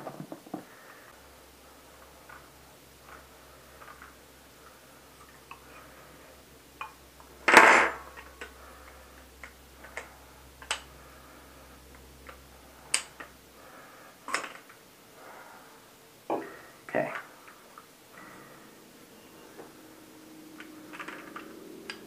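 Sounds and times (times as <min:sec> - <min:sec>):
small metal parts clicking: 0:20.6 - 0:22.0.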